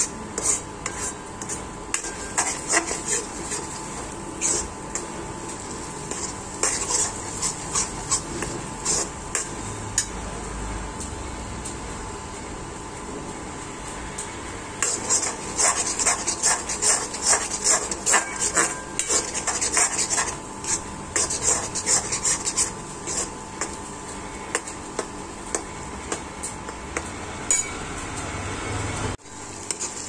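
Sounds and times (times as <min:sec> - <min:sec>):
metal spoon scraping a metal pan: 0:00.0 - 0:10.2, 0:14.8 - 0:23.8, 0:29.6 - 0:30.0.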